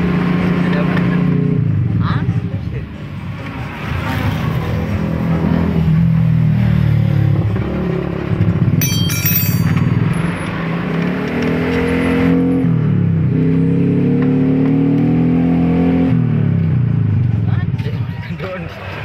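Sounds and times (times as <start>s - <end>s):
high metallic ringing: 8.8s - 10.4s.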